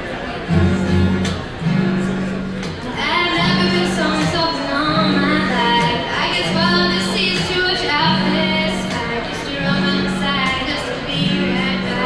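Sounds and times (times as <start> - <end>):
acoustic guitar: 0.0 - 12.0
woman singing: 3.0 - 12.0.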